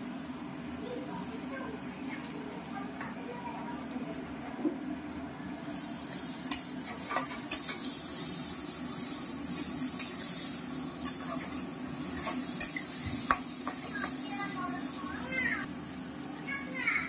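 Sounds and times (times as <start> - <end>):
food sizzling in hot oil: 0.0 - 17.0
spatula scraping a pan: 9.9 - 14.6.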